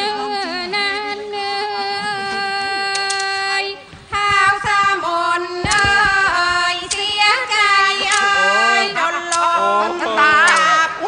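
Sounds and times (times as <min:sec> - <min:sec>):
traditional percussion ensemble: 0:03.8 - 0:08.7.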